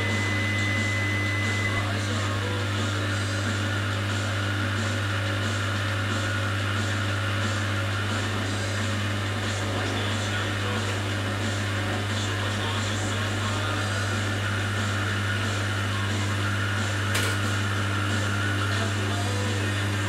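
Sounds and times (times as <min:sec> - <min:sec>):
appliances humming: 0:00.0 - 0:20.0
sharp click: 0:17.1 - 0:17.5.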